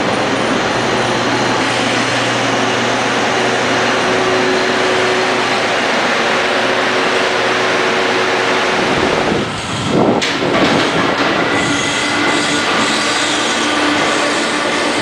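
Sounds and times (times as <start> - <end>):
electric train rumbling: 0.0 - 15.0
high-speed train rushing past: 0.0 - 15.0.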